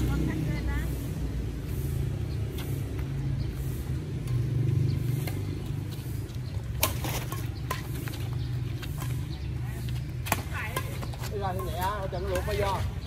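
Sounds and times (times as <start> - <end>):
low rumble of traffic: 0.0 - 13.0
racket striking shuttlecock: 6.7 - 9.2.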